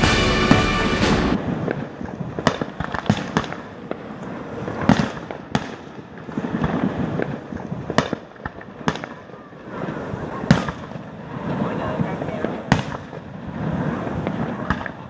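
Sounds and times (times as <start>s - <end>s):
fireworks shells bursting: 0.0s - 4.0s.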